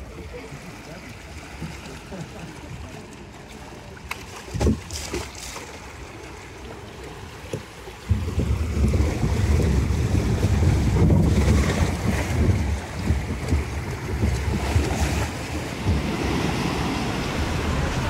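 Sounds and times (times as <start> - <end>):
rushing water: 0.0 - 18.0
wind buffeting microphone: 8.0 - 18.0
loud uneven low rumble: 8.1 - 18.0.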